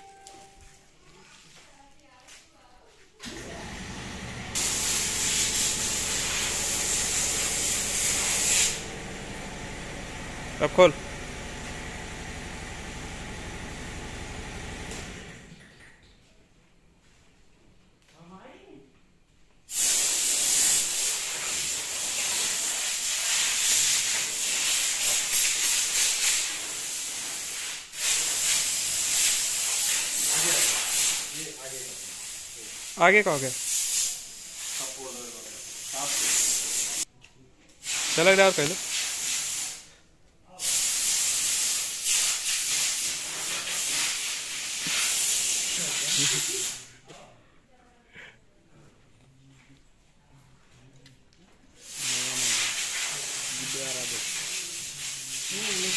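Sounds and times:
electric motor whirring: 0:03.3 - 0:15.2
loud steady hiss: 0:03.7 - 0:15.3, 0:19.7 - 0:37.1, 0:37.8 - 0:39.9, 0:40.5 - 0:46.9, 0:51.8 - 0:55.9.

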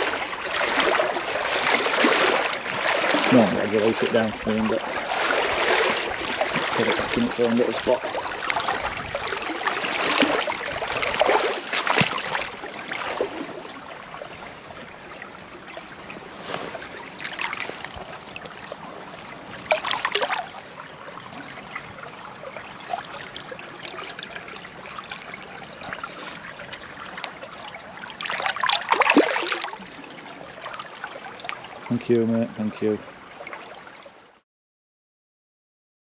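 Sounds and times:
water splashing around net: 0:00.0 - 0:20.7, 0:22.8 - 0:29.8
stream trickling: 0:00.0 - 0:34.4.

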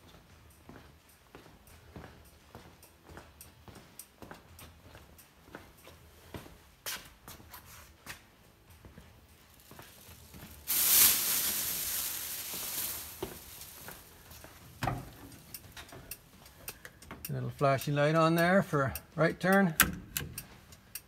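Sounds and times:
loud rustling hiss: 0:09.6 - 0:15.5.

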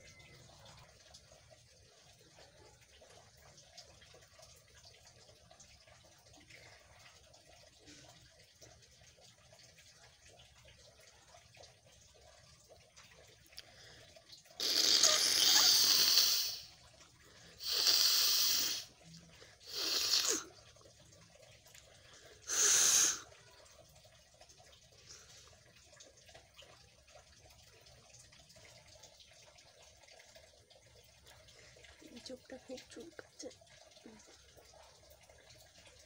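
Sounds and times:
person blowing nose: 0:14.6 - 0:16.6, 0:17.6 - 0:18.9, 0:19.7 - 0:20.4, 0:22.5 - 0:23.2.

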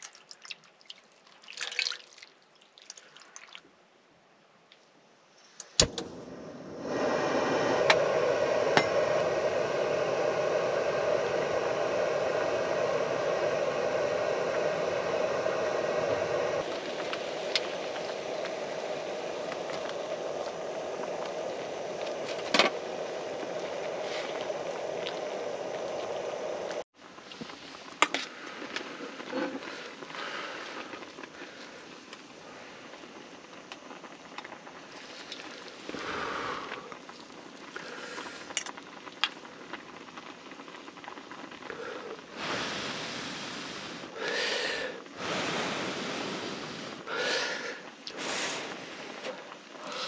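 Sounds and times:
sauce boiling in a pan: 0:00.0 - 0:03.6, 0:06.2 - 0:50.0
water pouring into a pan: 0:00.0 - 0:03.6.

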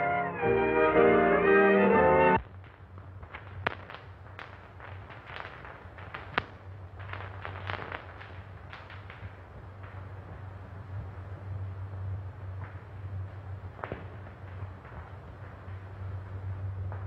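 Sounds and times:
brass music: 0:00.0 - 0:02.4
film soundtrack crackle and pops: 0:00.0 - 0:17.0
low steady hum: 0:00.0 - 0:17.0.

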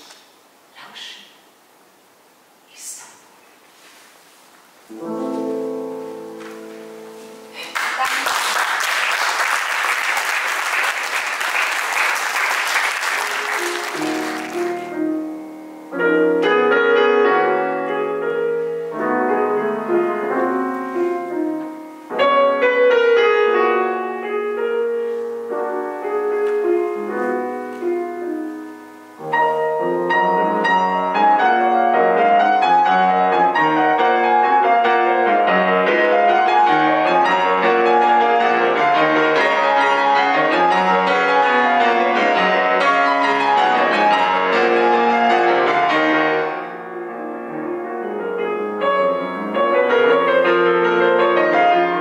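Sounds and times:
grand piano playing: 0:04.9 - 0:08.0, 0:08.6 - 0:52.0
audience applauding: 0:07.6 - 0:14.9.

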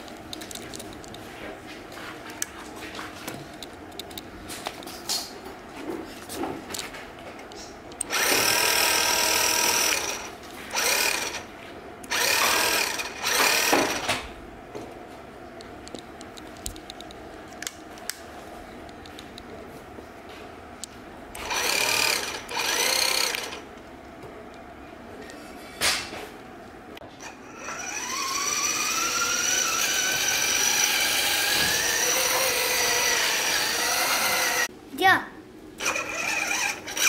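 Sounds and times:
electric motor whirring: 0:08.0 - 0:11.5, 0:12.1 - 0:14.1, 0:21.4 - 0:23.6, 0:27.2 - 0:34.7, 0:35.8 - 0:37.0.

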